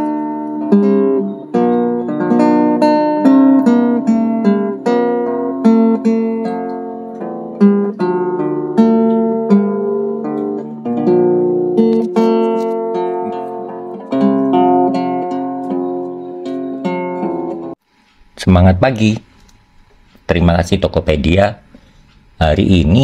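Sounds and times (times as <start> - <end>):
acoustic guitar strumming: 0.0 - 17.8.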